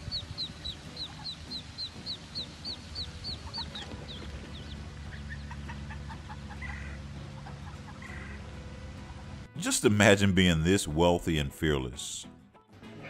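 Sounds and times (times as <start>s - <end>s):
duckling peeping: 0.0s - 8.5s.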